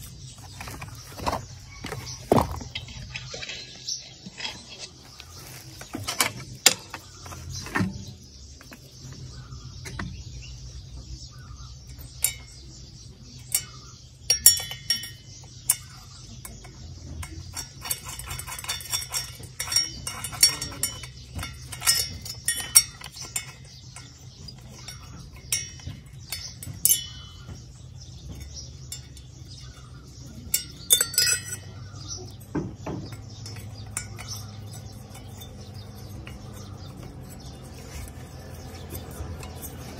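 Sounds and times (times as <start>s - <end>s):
metal parts clinking: 13.4s - 39.9s.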